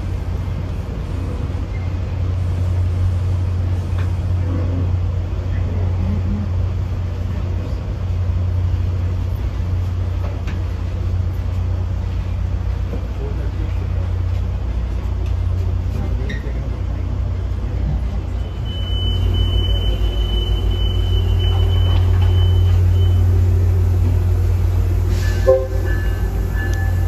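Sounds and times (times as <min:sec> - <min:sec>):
train idling hum: 0:00.0 - 0:27.0
steady horn tones: 0:25.2 - 0:27.0.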